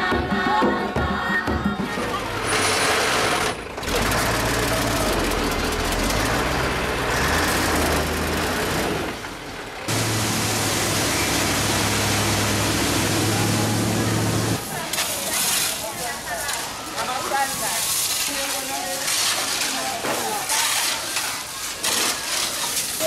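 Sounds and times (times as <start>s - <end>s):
diesel truck engine running: 2.2s - 14.7s
broad rushing noise: 9.9s - 16.3s.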